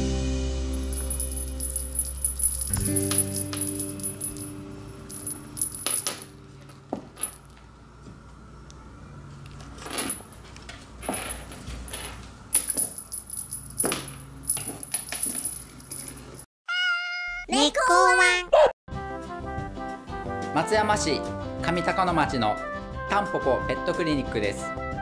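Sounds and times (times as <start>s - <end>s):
small bell jingling on cat toy: 0.8s - 6.0s.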